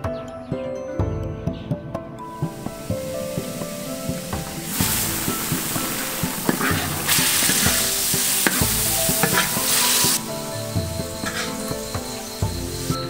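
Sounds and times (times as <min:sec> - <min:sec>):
food sizzling in a pan: 0:02.3 - 0:13.0
metal spatula scraping: 0:04.2 - 0:10.4.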